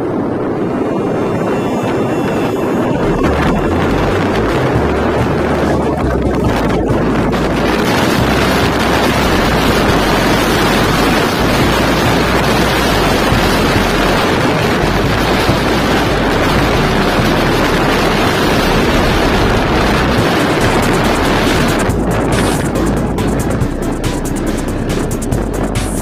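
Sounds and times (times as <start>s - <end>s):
motorcycle engine: 0.0s - 26.0s
road noise: 0.0s - 26.0s
wind rushing over microphone: 0.0s - 26.0s.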